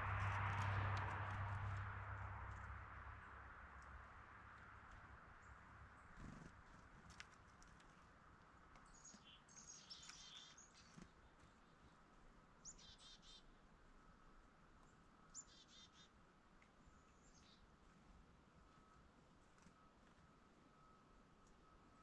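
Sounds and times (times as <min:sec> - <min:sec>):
small songbirds calling: 0:08.7 - 0:12.0, 0:12.6 - 0:13.7, 0:14.8 - 0:16.2, 0:16.8 - 0:17.7.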